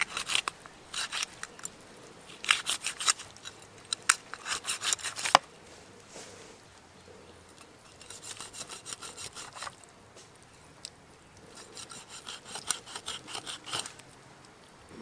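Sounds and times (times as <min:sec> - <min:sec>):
knife sawing through meat: 0:04.4 - 0:05.4, 0:08.0 - 0:09.8, 0:11.5 - 0:13.9.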